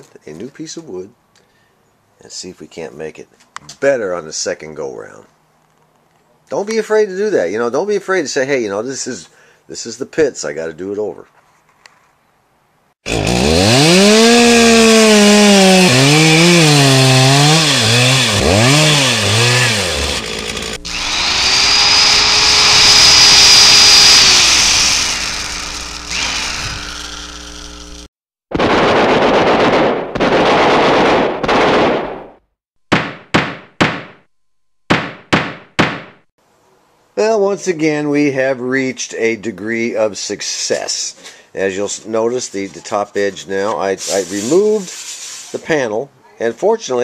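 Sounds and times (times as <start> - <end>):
power saw whining: 13.1 - 28.1
rasping strokes: 13.1 - 28.1
motor pitch swooping: 18.7 - 28.1.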